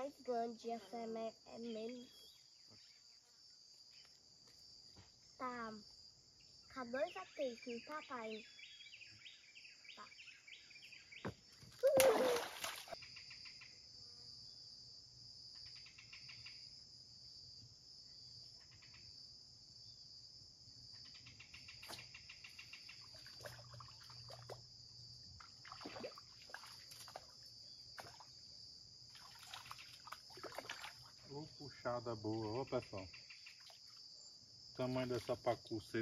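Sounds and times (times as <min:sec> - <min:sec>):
high insect drone: 0:00.0 - 0:36.0
bird chirps: 0:01.6 - 0:03.0, 0:07.1 - 0:11.3.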